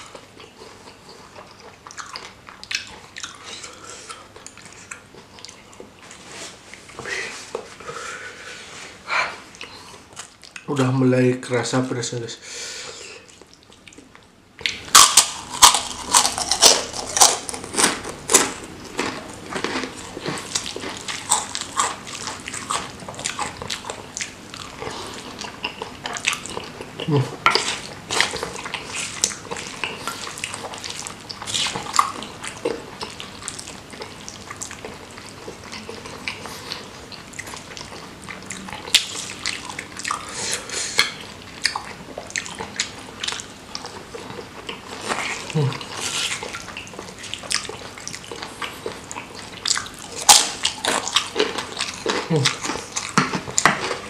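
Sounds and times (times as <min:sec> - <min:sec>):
wet chewing and slurping: 0:13.1 - 0:54.0
crunching fried cracker: 0:14.6 - 0:38.1.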